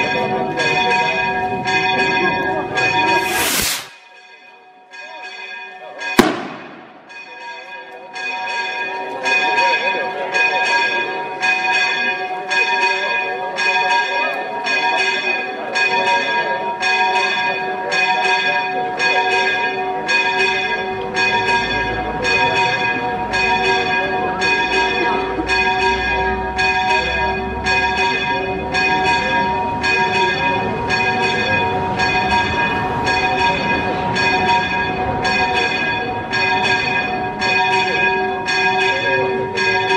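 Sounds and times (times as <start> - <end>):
church bells pealing: 0.0 - 3.2, 4.0 - 39.9
sharp bang: 3.0 - 4.2, 6.2 - 7.3.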